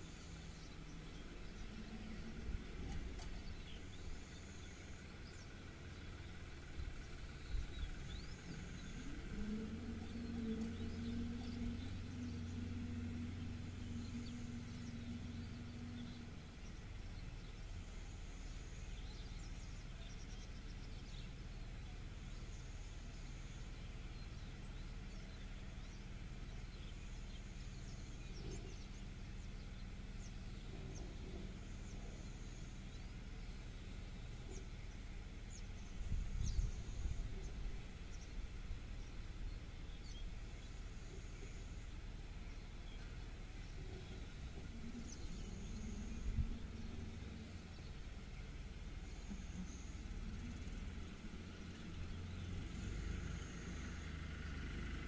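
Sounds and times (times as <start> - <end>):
faint bird chirps: 0.0 - 54.7
engine-like drone: 0.0 - 55.0
steady low rumble: 0.0 - 55.0.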